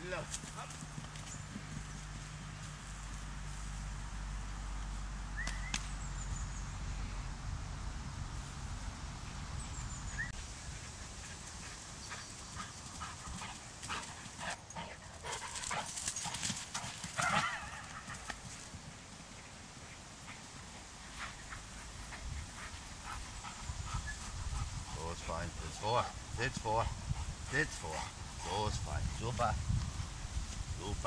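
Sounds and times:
dog paws running on grass: 0.0s - 5.8s, 10.4s - 31.0s.

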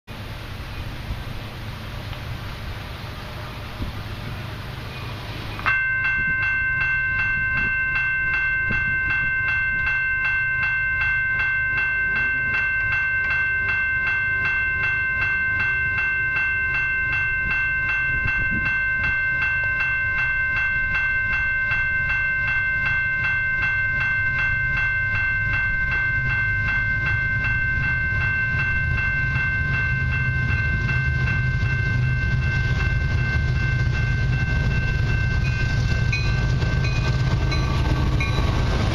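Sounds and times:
low rumble of freight train: 0.1s - 38.9s
level crossing warning bell: 0.4s - 38.9s.

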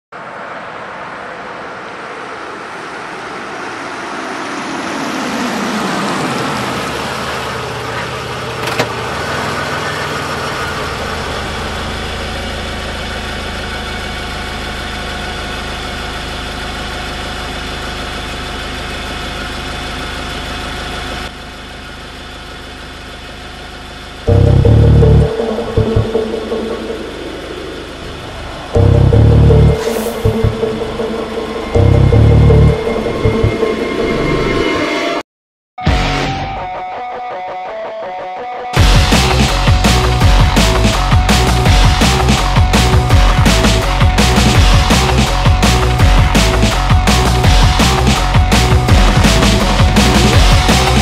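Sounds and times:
car engine idling: 0.9s - 33.8s, 38.8s - 51.0s
sound falling in pitch: 24.3s - 34.2s.

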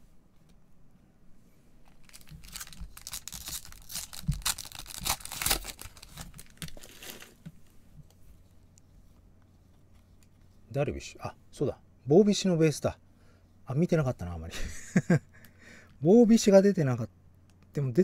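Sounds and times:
foil wrapper tearing and crinkling: 2.0s - 7.4s.

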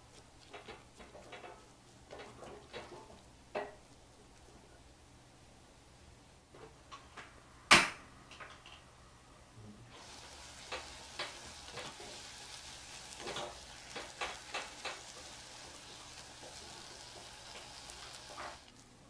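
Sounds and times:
dough sizzling in saucepan: 0.0s - 4.1s, 9.9s - 18.8s
spatula scraping and tapping pan: 0.4s - 3.8s, 10.6s - 12.2s, 13.1s - 18.6s.

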